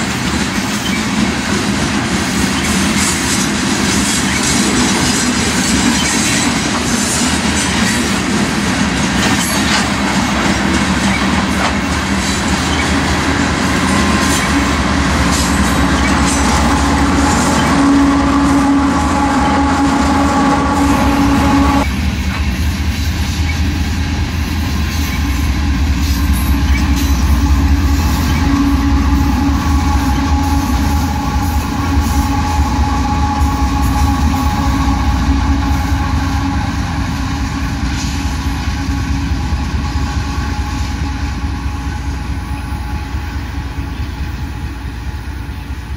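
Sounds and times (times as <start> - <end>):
freight train rumbling past: 0.0 - 45.9
locomotive air horn: 13.2 - 22.0, 25.2 - 44.0.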